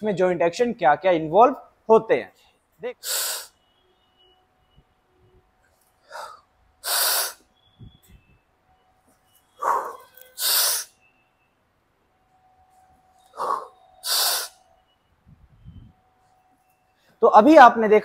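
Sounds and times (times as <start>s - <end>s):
man breathing hard: 3.0s - 3.6s, 6.0s - 7.4s, 13.2s - 14.6s.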